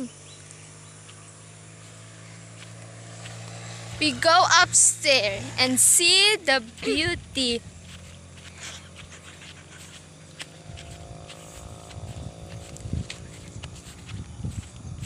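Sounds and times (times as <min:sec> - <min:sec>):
light footsteps on grass: 0:00.4 - 0:15.0
wind rumbling on microphone: 0:06.6 - 0:15.0.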